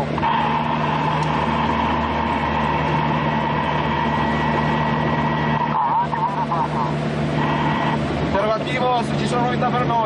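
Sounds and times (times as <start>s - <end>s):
vehicle engine and road noise: 0.0s - 10.0s.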